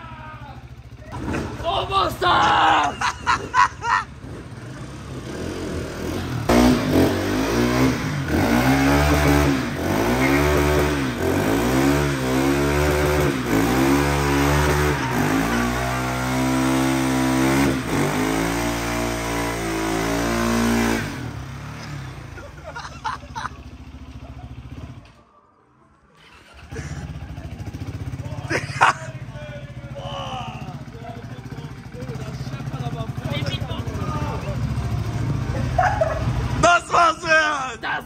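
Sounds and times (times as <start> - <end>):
motorcycle engine revving: 0.0 - 25.3, 26.1 - 36.7.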